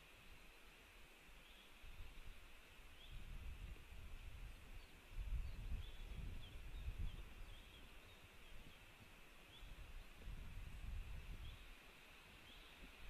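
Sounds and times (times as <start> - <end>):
wind buffeting microphone: 3.0 - 11.8.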